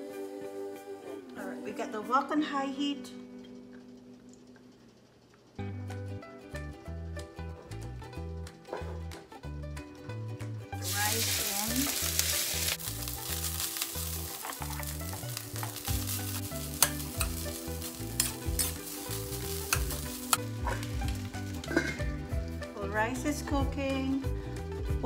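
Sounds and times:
rice sizzling in hot oil: 10.8 - 22.5
sharp clinks against wok: 16.7 - 17.4, 18.2 - 18.8.

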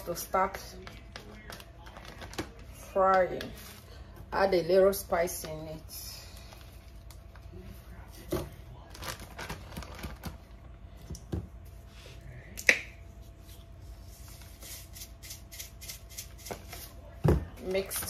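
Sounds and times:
plastic bag rustling: 6.4 - 10.5.

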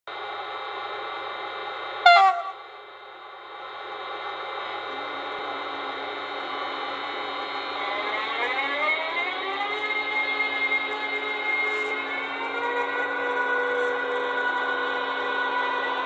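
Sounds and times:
rising multi-tone electric whine: 0.1 - 16.0
loud pitched horn blast: 2.0 - 2.7.

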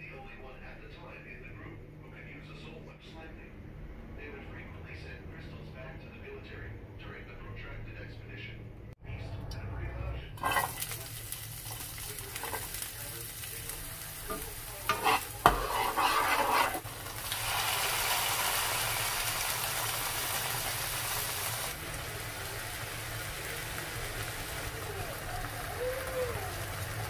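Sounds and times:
food sizzling in oil: 10.4 - 27.0
spatula knocking and scraping pan: 12.3 - 12.8, 14.2 - 16.8.

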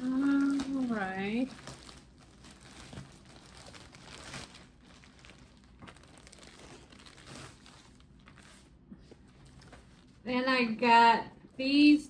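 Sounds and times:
packaging crinkling and tearing: 0.0 - 8.8.

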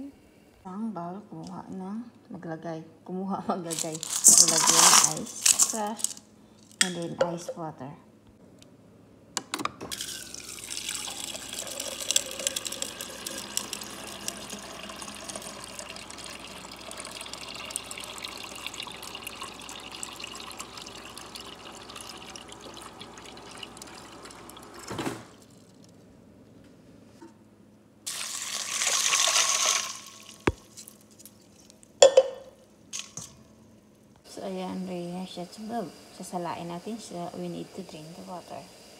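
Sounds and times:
water being poured out: 3.7 - 6.2, 9.9 - 25.6, 28.1 - 30.8
water dispenser running into ice: 3.7 - 6.2, 9.9 - 25.6, 28.1 - 30.6.

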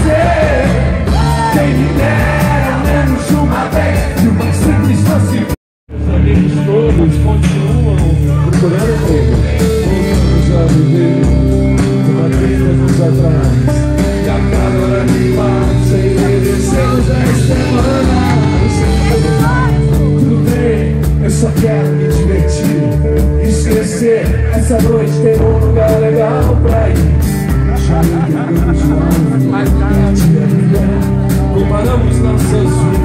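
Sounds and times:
live rock band playing: 0.0 - 33.0
person singing: 0.0 - 33.0.

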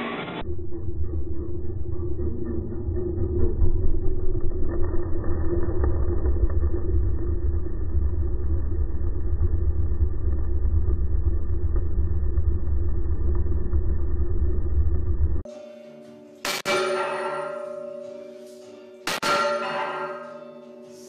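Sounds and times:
steady hum: 0.0 - 20.9
underwater outboard motor rumble: 0.5 - 15.5.

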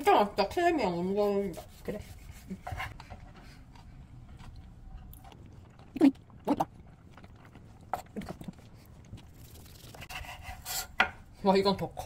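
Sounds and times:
person chewing: 3.6 - 10.1.

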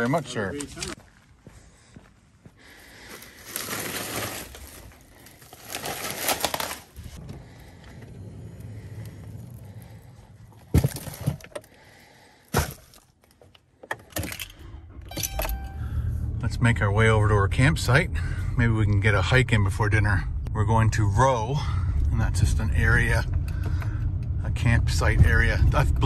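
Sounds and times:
rustling and handling: 3.1 - 7.5
keys clicking in ignition: 13.9 - 16.0
car doors shutting: 14.2 - 16.4.

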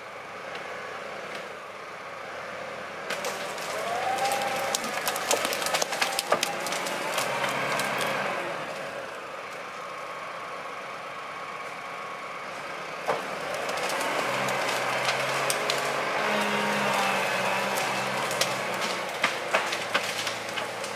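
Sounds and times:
tractor engine running: 0.0 - 20.9
branches cracking under tyres: 3.0 - 9.9, 13.0 - 20.9.

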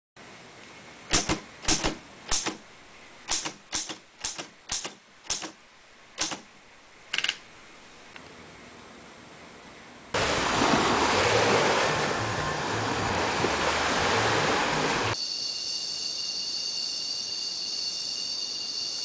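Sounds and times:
manual typewriter keystrokes: 3.3 - 5.6, 6.2 - 6.5.

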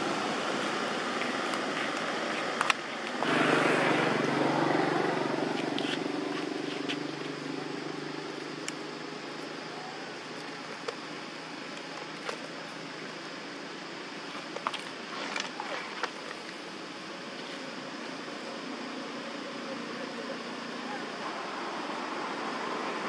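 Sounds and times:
background hiss: 0.0 - 23.0
vehicle engine passing by: 3.2 - 8.4.

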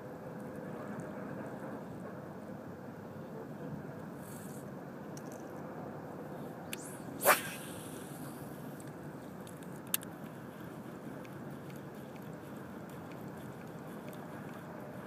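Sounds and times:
background hiss: 6.5 - 15.0
fishing rod whoosh: 6.8 - 8.5.

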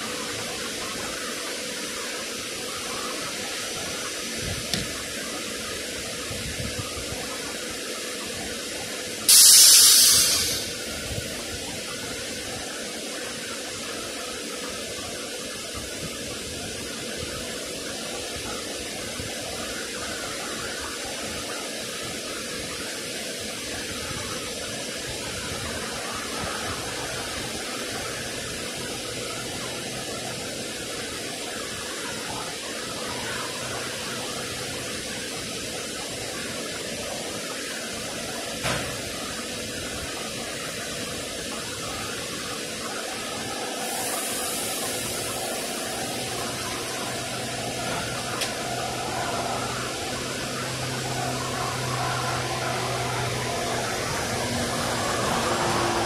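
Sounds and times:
train ventilation fans rushing: 0.0 - 56.0
train equipment rushing noise: 9.3 - 11.3.

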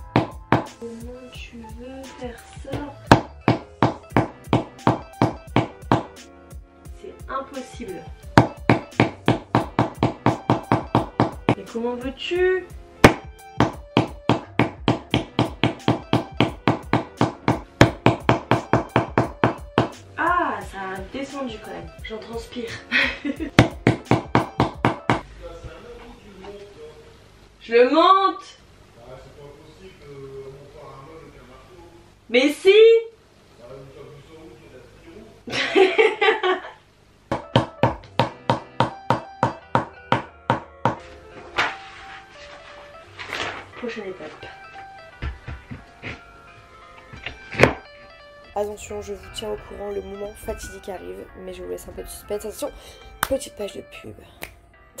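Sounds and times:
hammer knocking on wooden panel: 0.0 - 0.8, 3.1 - 6.2, 8.4 - 11.6, 13.0 - 20.0, 23.5 - 25.2, 37.3 - 41.0, 45.2 - 46.2, 47.1 - 47.9
person laughing: 22.7 - 23.6, 35.5 - 36.8.

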